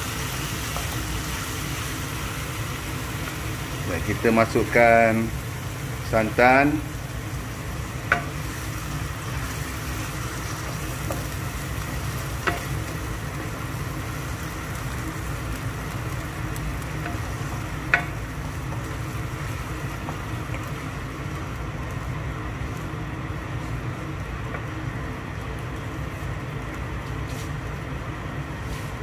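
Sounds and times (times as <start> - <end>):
food sizzling in a wok: 0.0 - 29.0
steady low hum: 0.0 - 29.0
spatula knocking against wok: 8.0 - 8.4, 17.0 - 18.2.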